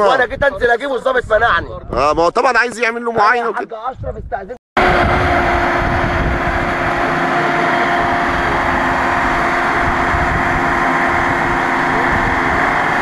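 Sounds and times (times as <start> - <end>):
low rumble: 4.8 - 13.0
truck engine running: 4.8 - 13.0.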